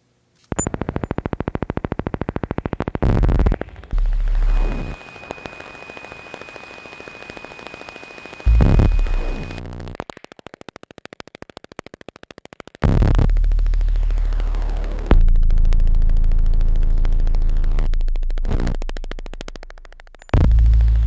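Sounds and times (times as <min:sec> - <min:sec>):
faint crackling noise: 0:00.0 - 0:21.0
rapid buzzing clicks: 0:00.4 - 0:21.0
high pure electronic tone: 0:00.5 - 0:12.0
heavy low bass bursts: 0:02.3 - 0:04.9, 0:20.4 - 0:21.0
loud low bass drone: 0:03.2 - 0:04.8, 0:13.2 - 0:18.8, 0:20.4 - 0:21.0.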